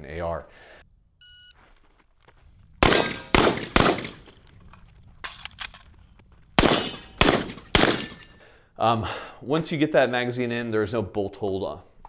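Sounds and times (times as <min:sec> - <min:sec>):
rifle shots: 0:02.8 - 0:04.3, 0:06.6 - 0:08.4.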